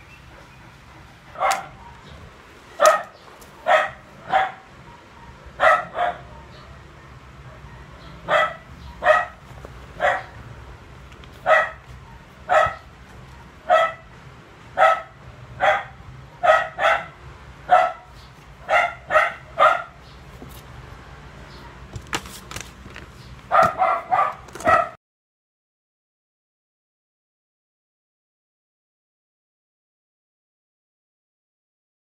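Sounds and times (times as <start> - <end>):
dog barking: 1.3 - 2.1, 2.8 - 6.8, 7.4 - 9.4, 10.0 - 10.4, 11.4 - 12.9, 13.6 - 14.1, 14.8 - 20.0, 23.5 - 25.0.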